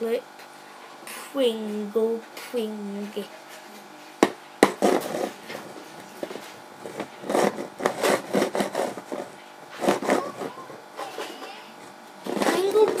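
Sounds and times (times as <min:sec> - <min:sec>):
can rubbing: 0:04.2 - 0:10.8, 0:11.4 - 0:13.0
can scraping and rustling: 0:04.6 - 0:10.6, 0:11.9 - 0:13.0.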